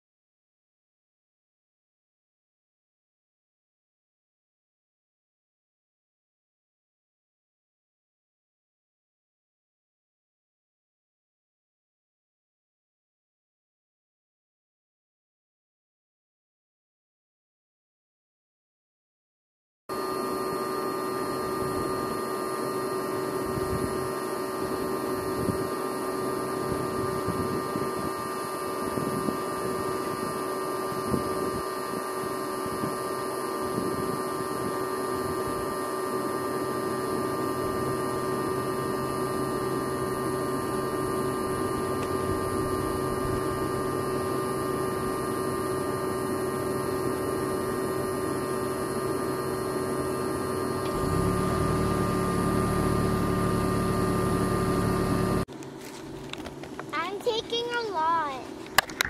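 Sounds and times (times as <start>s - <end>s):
steady multi-tone hum: 19.9s - 59.0s.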